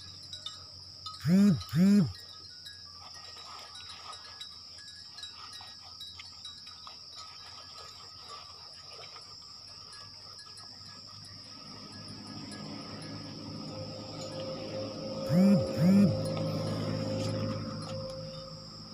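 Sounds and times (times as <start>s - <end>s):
high-pitched insect drone: 1.0s - 2.4s, 11.1s - 18.9s
water splashes and drips: 3.0s - 10.6s.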